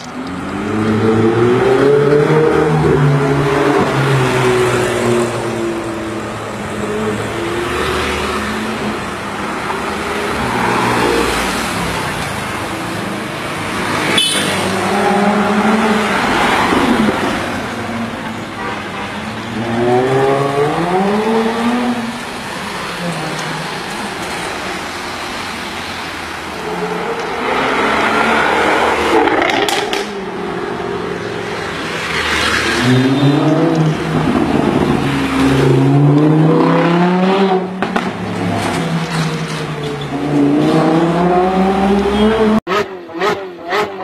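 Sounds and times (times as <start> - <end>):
sports car engines accelerating: 26.6 - 44.0.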